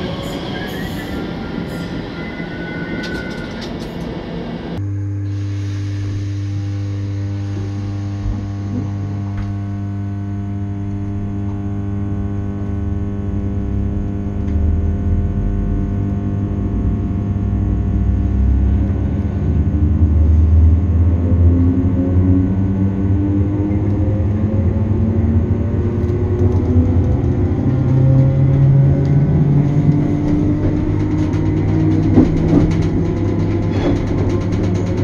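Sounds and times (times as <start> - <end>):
train electrical hum: 0.0 - 35.0
train rumble pulling away: 16.7 - 35.0.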